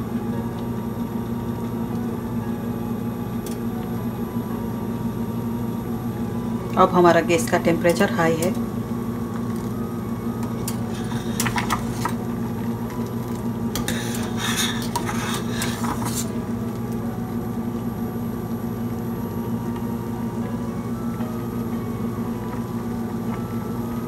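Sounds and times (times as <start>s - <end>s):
steady low hum: 0.0s - 24.0s
metal spoon scraping a pot: 10.9s - 12.0s, 13.8s - 16.3s.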